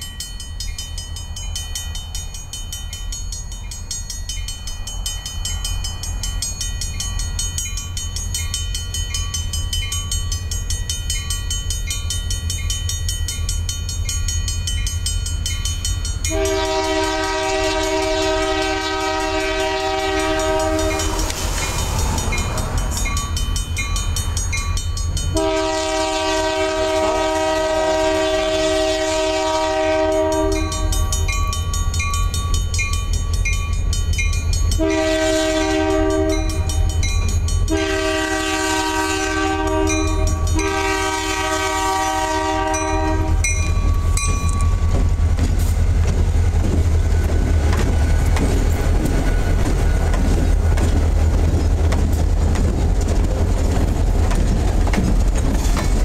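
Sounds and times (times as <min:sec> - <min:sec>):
crossing signal bell ringing: 0:00.0 - 0:27.8, 0:29.7 - 0:45.3
locomotive air horn: 0:16.3 - 0:21.4, 0:25.3 - 0:31.2, 0:34.8 - 0:37.0, 0:37.7 - 0:43.5.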